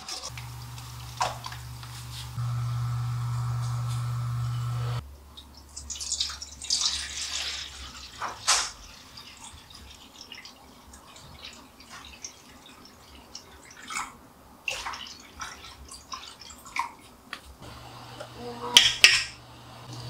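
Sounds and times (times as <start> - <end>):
liquid pouring and splashing: 5.8 - 17.1.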